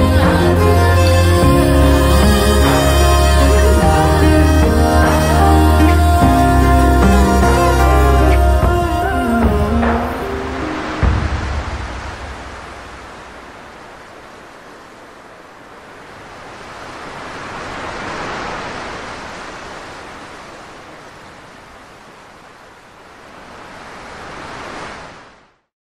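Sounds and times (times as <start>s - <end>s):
waves washing onto beach: 0.0s - 25.6s.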